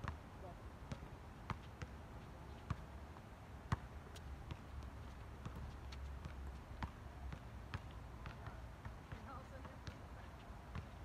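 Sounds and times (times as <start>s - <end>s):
basketball bouncing: 3.7s - 10.0s.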